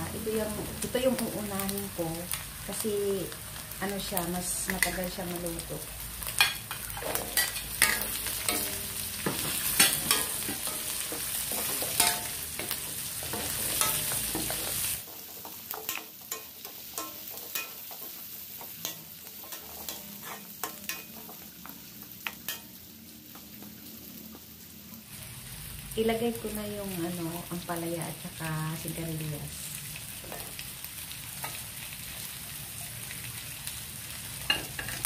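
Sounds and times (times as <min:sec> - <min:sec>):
vegetables sizzling in oil: 0:00.0 - 0:35.0
metal spatula scraping a wok: 0:06.4 - 0:18.2, 0:18.8 - 0:21.4.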